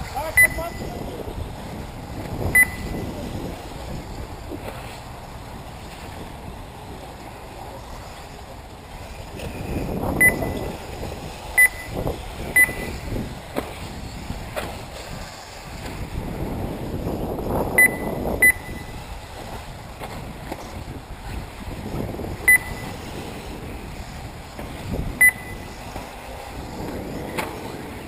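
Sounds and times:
wind noise on microphone: 0.0 - 28.0
short electronic beeps: 0.2 - 0.9, 2.5 - 3.1, 10.2 - 10.7, 11.6 - 13.0, 17.8 - 19.0, 22.5 - 23.0, 25.2 - 25.8.

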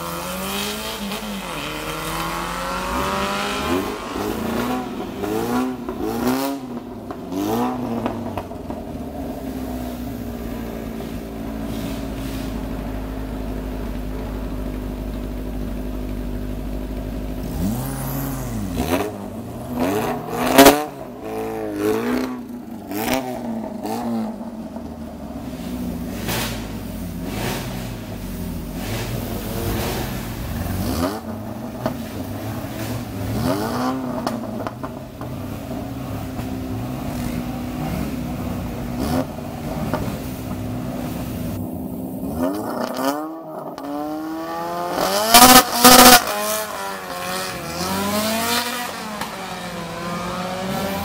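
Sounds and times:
car engine revving and accelerating: 0.0 - 14.8, 17.3 - 51.0.

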